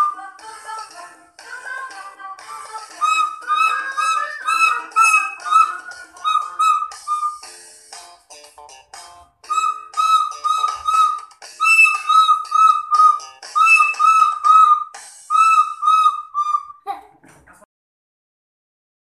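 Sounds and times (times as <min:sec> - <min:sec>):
plastic recorder shrill toots: 0:03.0 - 0:07.4, 0:09.5 - 0:16.8.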